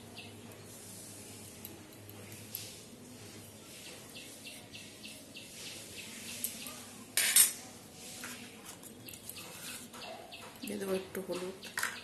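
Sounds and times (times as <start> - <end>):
spoon scraping a metal bowl: 7.2 - 10.0.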